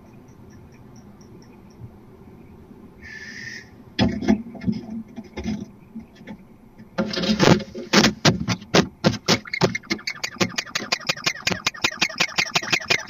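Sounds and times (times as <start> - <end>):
owl rasping strokes: 9.1 - 13.0.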